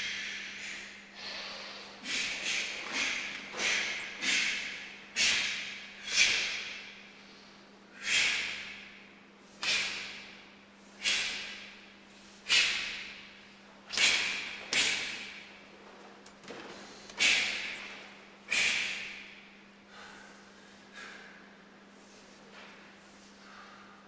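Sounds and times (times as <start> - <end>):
sharp forceful exhalations: 0.0 - 8.9, 9.5 - 13.2.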